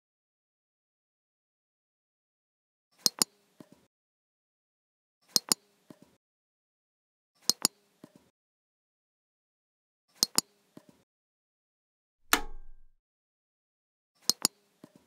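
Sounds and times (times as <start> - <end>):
dull knock: 12.3 - 12.9
mouse and keyboard clicks: 12.3 - 12.9.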